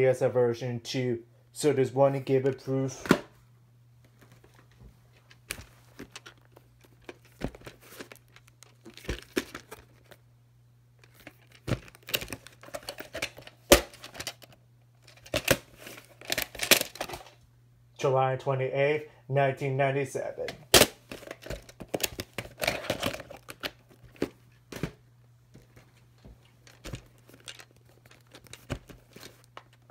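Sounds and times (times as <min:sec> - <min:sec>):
plastic case clicking and rustling: 0:04.1 - 0:10.2, 0:11.0 - 0:17.4, 0:20.5 - 0:25.0, 0:25.6 - 0:29.9.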